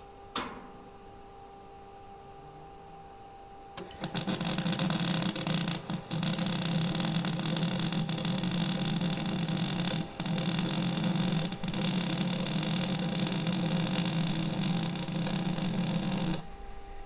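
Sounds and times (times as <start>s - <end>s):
welding arc crackling and sizzling: 3.8s - 17.0s.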